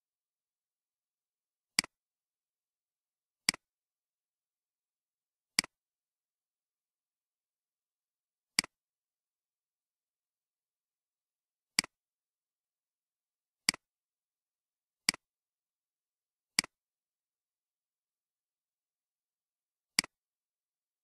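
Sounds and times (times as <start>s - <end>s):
computer mouse clicks: 20.0s - 20.2s.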